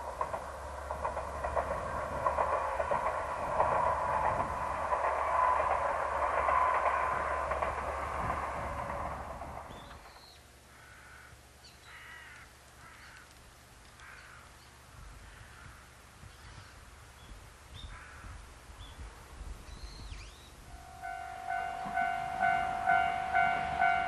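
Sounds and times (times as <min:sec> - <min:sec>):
passing diesel railcar: 0:00.0 - 0:10.7, 0:20.3 - 0:24.0.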